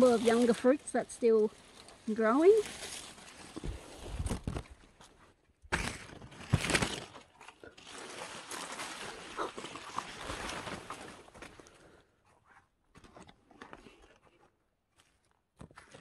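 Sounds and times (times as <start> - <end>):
leaves and branches rustling: 0.0 - 11.8.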